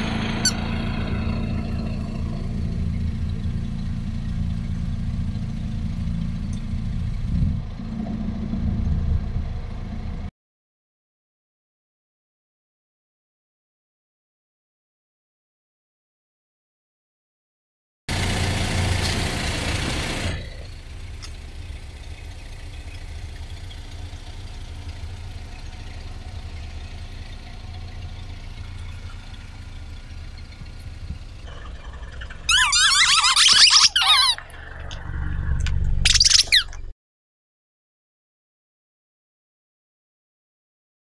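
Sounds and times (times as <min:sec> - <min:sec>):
car engine idling: 0:00.0 - 0:10.3, 0:18.1 - 0:36.9
high wavering squeaks: 0:00.4 - 0:00.8, 0:26.4 - 0:36.9.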